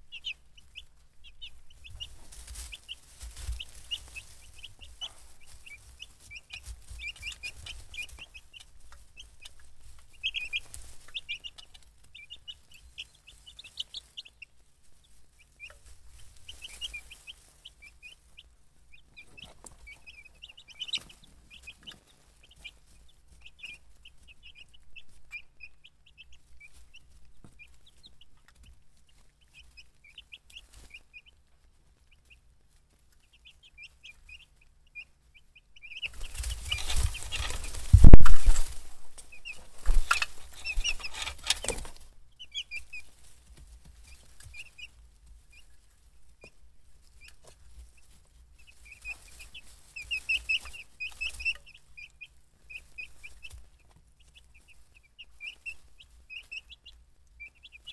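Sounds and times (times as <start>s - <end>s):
chicks peeping: 0.0s - 57.9s.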